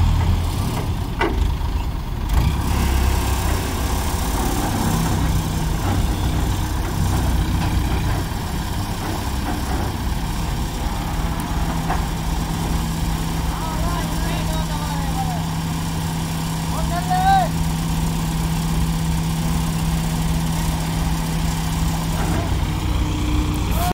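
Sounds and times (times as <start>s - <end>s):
diesel engines humming: 0.0s - 23.9s.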